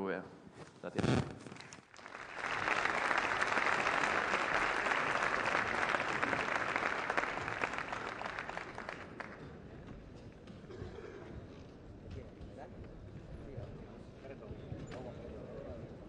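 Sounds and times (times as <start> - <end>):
audience applauding: 1.5 - 9.6.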